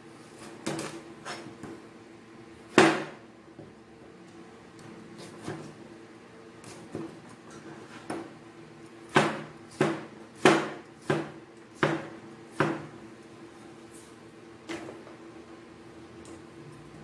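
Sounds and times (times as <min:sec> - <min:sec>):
cleaver chopping on plastic board: 0:09.1 - 0:12.9.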